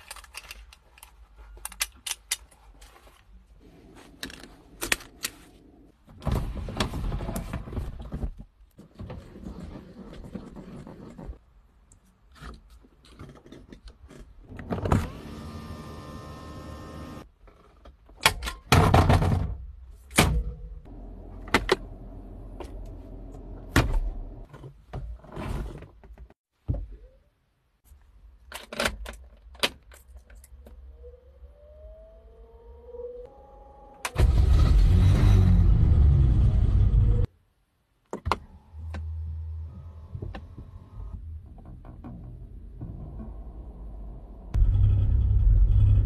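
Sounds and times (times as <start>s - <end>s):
electric window motor whirring: 15.0s - 17.2s.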